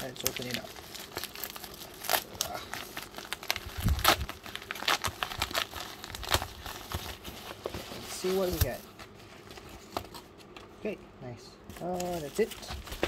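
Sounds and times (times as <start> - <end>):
plastic bubble mailer crinkling: 0.0 - 8.9.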